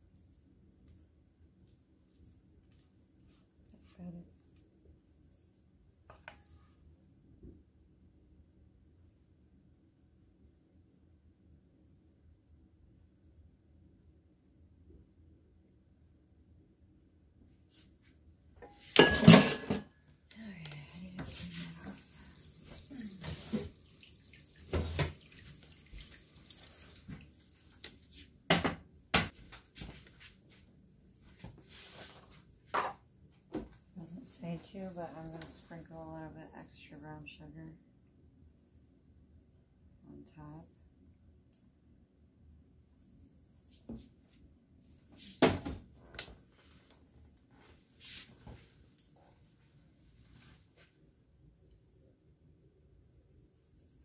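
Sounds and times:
pans and utensils clattering: 0:18.6 - 0:19.9.

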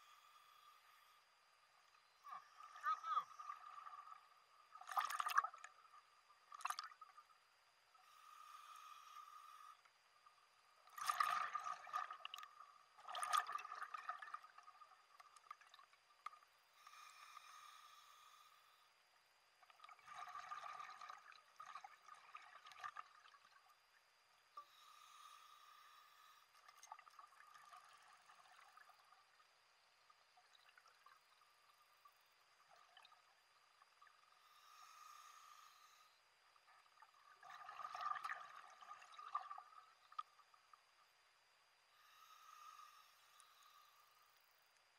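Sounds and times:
underwater bubbling: 0:02.0 - 0:41.0
gurgling exhaled bubbles: 0:04.8 - 0:05.7, 0:06.5 - 0:07.1, 0:10.9 - 0:15.8, 0:19.8 - 0:23.5, 0:37.3 - 0:39.8
breath through regulator: 0:08.0 - 0:10.0, 0:16.7 - 0:19.0, 0:24.6 - 0:26.9, 0:34.3 - 0:36.3, 0:41.9 - 0:44.4.

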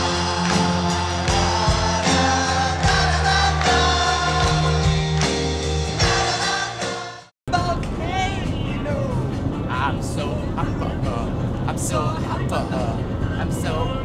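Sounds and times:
voices singing: 0:00.0 - 0:07.3
bass: 0:00.0 - 0:14.0
guitar: 0:00.0 - 0:14.0.

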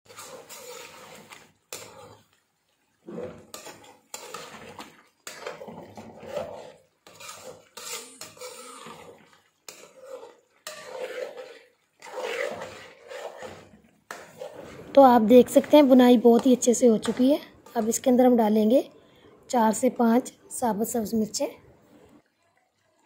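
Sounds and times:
metal spoon scraping a pan: 0:00.0 - 0:02.4, 0:03.0 - 0:18.6.

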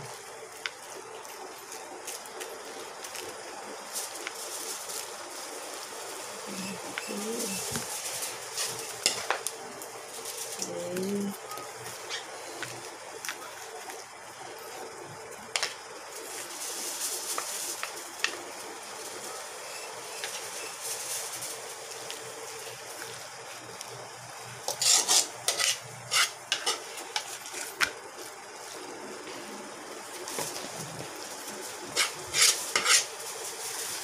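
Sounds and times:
utensils scraping a metal pan: 0:24.7 - 0:27.3, 0:31.9 - 0:33.1.

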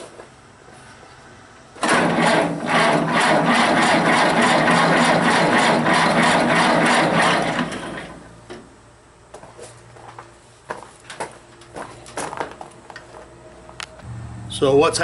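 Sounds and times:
tractor engine cranking: 0:01.8 - 0:08.2.

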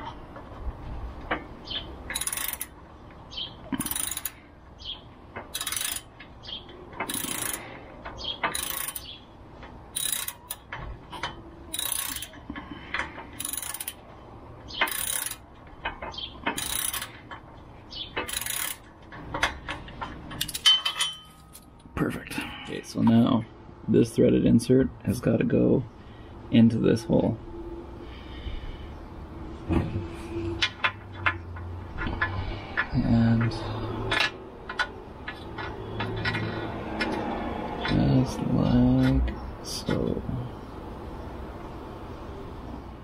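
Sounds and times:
socket ratchet clicking: 0:02.1 - 0:02.8, 0:03.8 - 0:04.4, 0:05.5 - 0:06.1, 0:07.0 - 0:07.6, 0:08.4 - 0:09.1, 0:09.9 - 0:10.7, 0:11.7 - 0:12.4, 0:13.4 - 0:14.0, 0:14.7 - 0:15.5, 0:16.5 - 0:17.1, 0:18.2 - 0:18.8.

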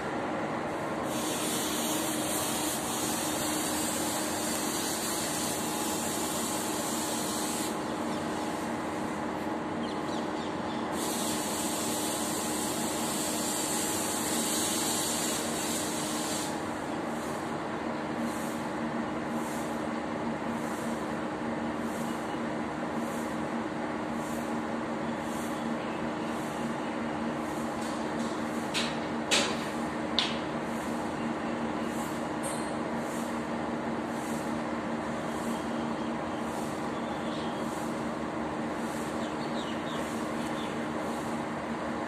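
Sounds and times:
low background hum: 0:00.0 - 0:13.6
high hiss: 0:01.0 - 0:09.1, 0:10.9 - 0:17.4.

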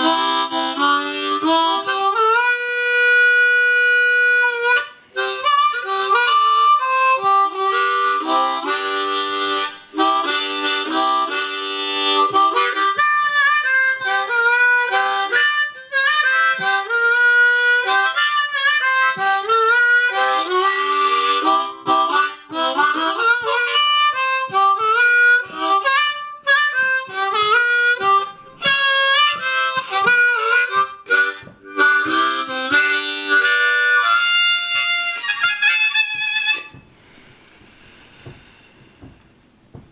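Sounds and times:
harmonica melody: 0:00.0 - 0:39.0.

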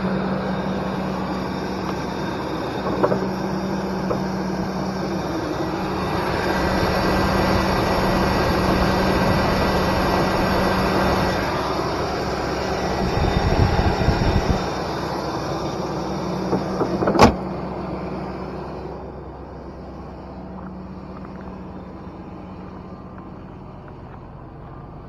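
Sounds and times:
pickup truck engine idling: 0:00.0 - 0:25.0
hood slamming shut: 0:16.5 - 0:17.5.

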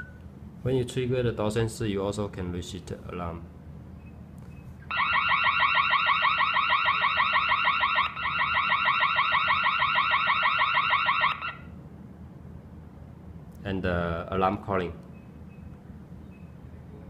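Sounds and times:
burglar alarm siren chirps: 0:00.0 - 0:00.2, 0:04.9 - 0:11.8.

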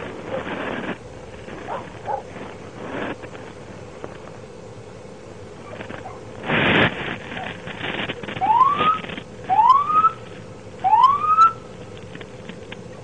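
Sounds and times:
loud burst of noise: 0:05.1 - 0:11.8
police siren whoops: 0:08.4 - 0:10.2, 0:10.8 - 0:11.6.

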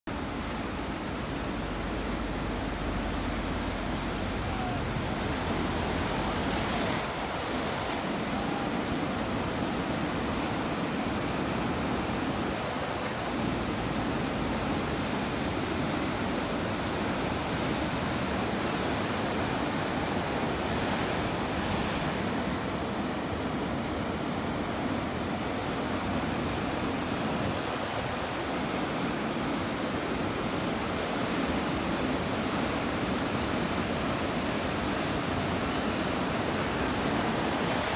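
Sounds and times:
ocean surf breaking: 0:00.1 - 0:37.9.

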